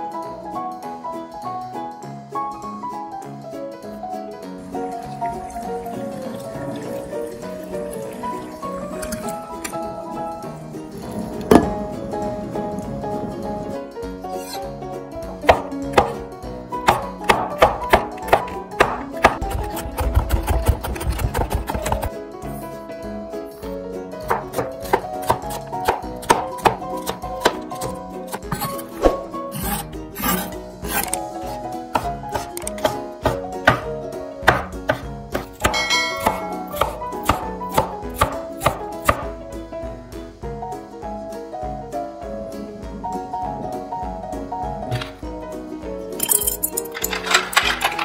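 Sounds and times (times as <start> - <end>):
plucked string music: 0.0 - 48.0
knife chopping on cutting board: 15.4 - 16.2, 16.8 - 22.1, 24.3 - 39.3.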